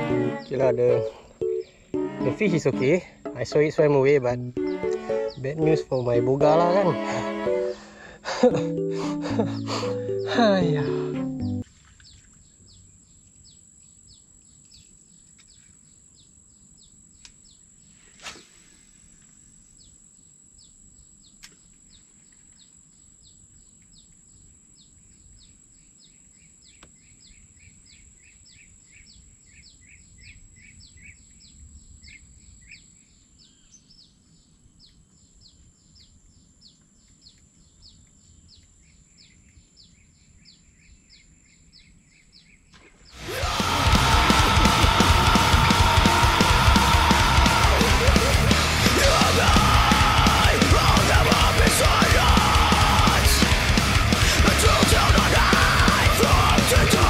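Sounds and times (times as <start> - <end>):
short falling chirps: 7.6 - 11.6.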